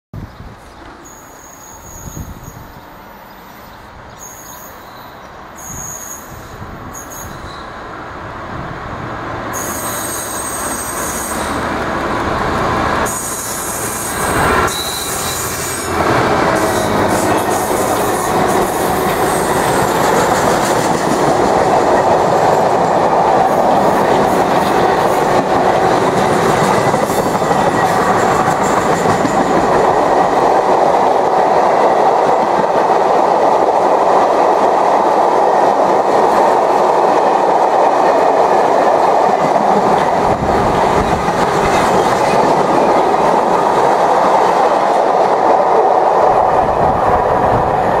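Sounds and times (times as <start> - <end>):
train wheels running on rails: 5.7 - 48.0.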